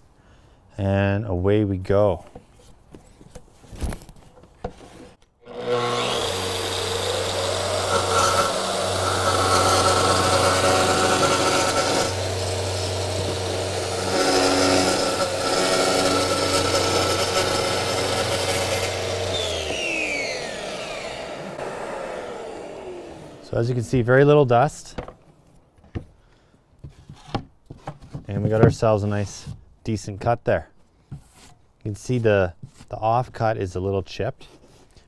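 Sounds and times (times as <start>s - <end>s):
dust extractor running: 5.5s - 23.6s
circular saw cutting concrete panel: 5.5s - 24.3s.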